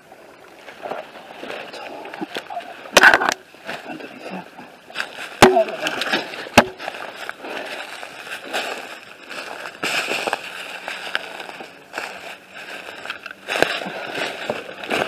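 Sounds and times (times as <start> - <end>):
branches brushing: 0.0 - 15.0
footsteps crunching dry leaves: 4.9 - 15.0.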